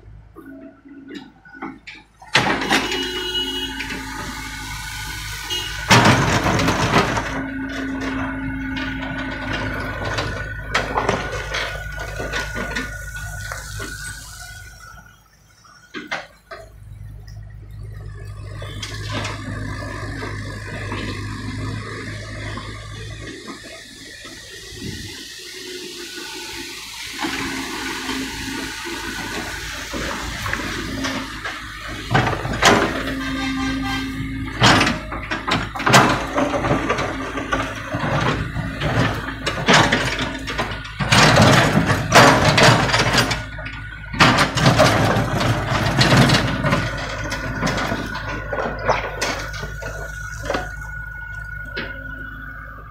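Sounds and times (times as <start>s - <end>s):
excavator engine running: 0.0s - 52.9s
asphalt chunks knocking and clattering: 5.5s - 14.9s, 27.2s - 52.9s.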